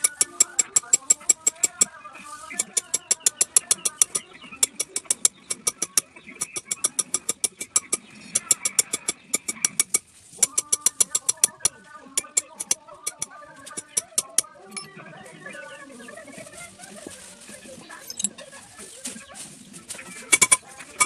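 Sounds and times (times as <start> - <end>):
hammer tapping stamping tool: 0.0 - 1.9, 2.5 - 14.9, 20.3 - 20.6.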